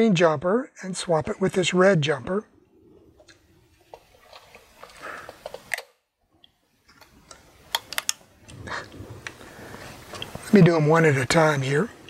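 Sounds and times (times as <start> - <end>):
alligator clips clicking: 4.2 - 9.4.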